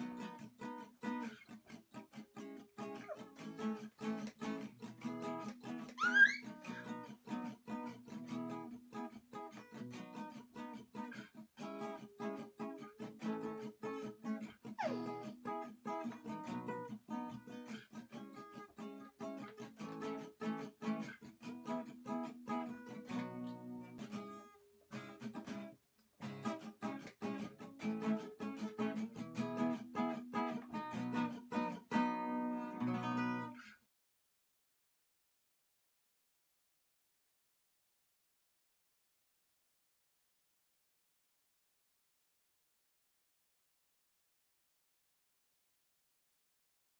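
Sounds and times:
acoustic guitar playing: 0.0 - 33.7.

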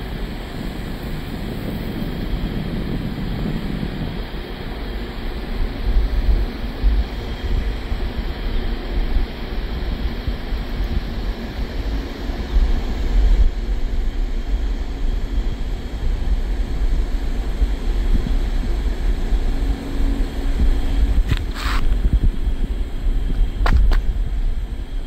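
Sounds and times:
wind buffeting microphone: 0.0 - 25.0
brief rustle: 21.3 - 22.0.

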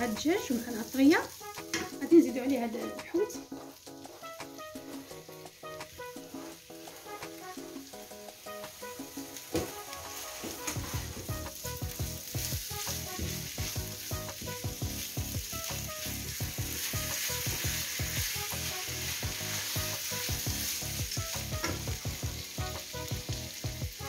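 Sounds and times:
food sizzling in oil: 0.0 - 24.0
wooden spatula stirring: 9.4 - 14.4.

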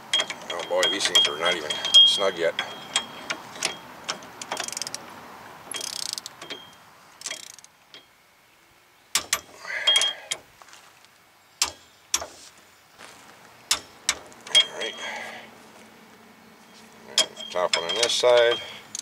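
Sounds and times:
sharp metallic clicks: 0.0 - 5.0, 5.7 - 8.1, 9.1 - 10.4, 11.6 - 12.4, 13.7 - 15.0, 17.1 - 19.0
torque wrench ratchet clicking: 2.9 - 5.0, 5.7 - 6.4, 7.2 - 7.7, 17.2 - 19.0.

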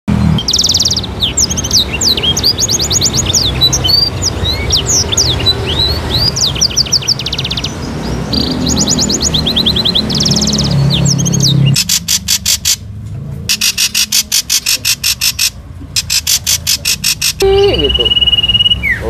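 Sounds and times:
songbird singing trills and whistles: 0.3 - 12.8, 13.5 - 19.0.

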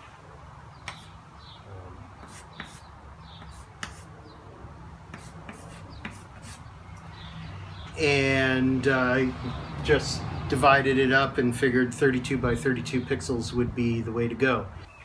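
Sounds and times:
chalk tapping on chalkboard: 0.8 - 1.1, 2.2 - 4.1, 5.1 - 6.6.

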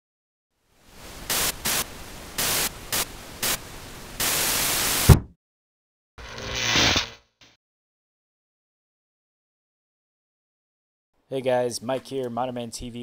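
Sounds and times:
television static hiss: 0.8 - 5.1
fist banging television: 5.1 - 5.3.

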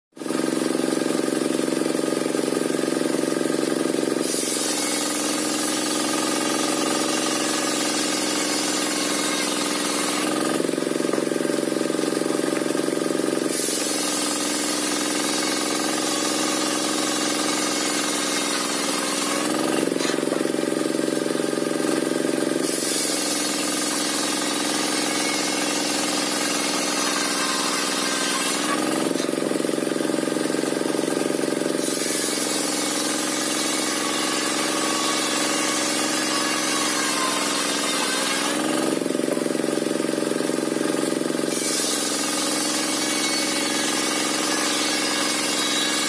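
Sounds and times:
sawmill engine running: 0.2 - 46.0
saw blade hissing through wood: 4.2 - 10.6, 13.4 - 20.2, 22.6 - 29.3, 41.5 - 46.0.

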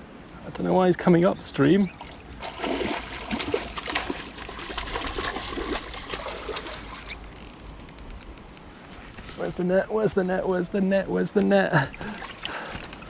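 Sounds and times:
stream water trickling: 1.6 - 13.0
fish splashing: 2.0 - 7.6.

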